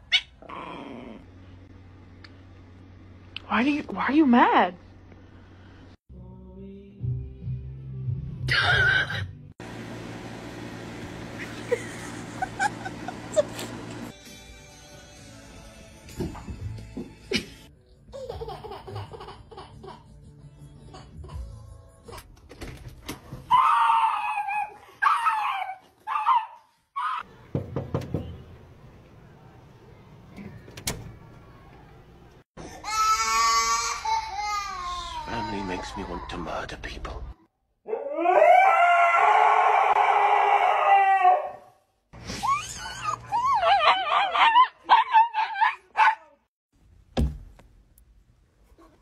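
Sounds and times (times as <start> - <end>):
dog crying: 23.5 - 27.2, 42.4 - 46.4
dog howling: 37.9 - 41.7.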